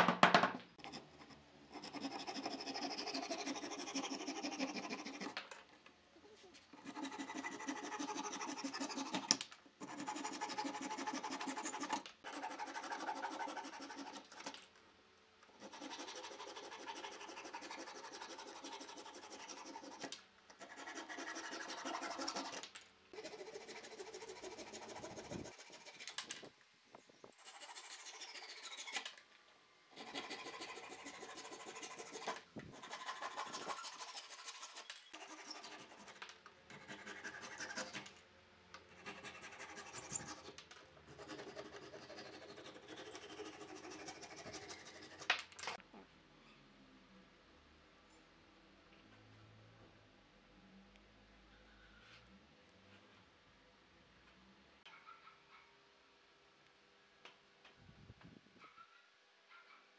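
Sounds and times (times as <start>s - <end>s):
handsaw rasping strokes: 1.7s - 5.4s, 6.8s - 14.4s, 15.6s - 22.6s, 30.0s - 38.1s.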